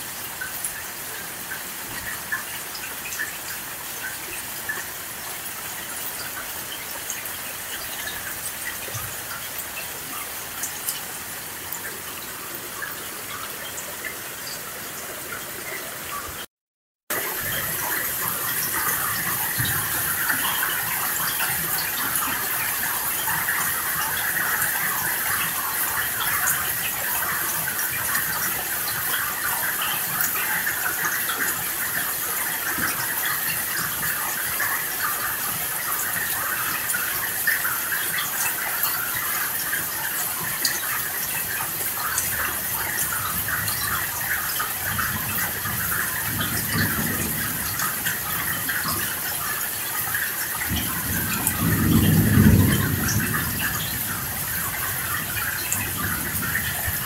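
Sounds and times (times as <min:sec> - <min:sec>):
heavy rain hissing: 0:45.6 - 0:57.0
low rolls of thunder: 0:45.8 - 0:48.5, 0:50.6 - 0:57.0.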